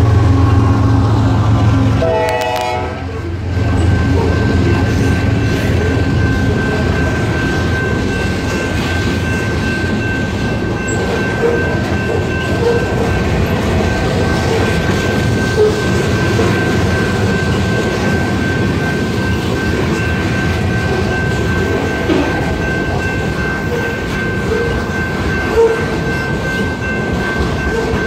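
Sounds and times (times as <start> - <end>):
train horn chord: 0.0 - 3.4
crossing bell ringing: 0.0 - 28.0
diesel locomotives passing: 0.0 - 28.0.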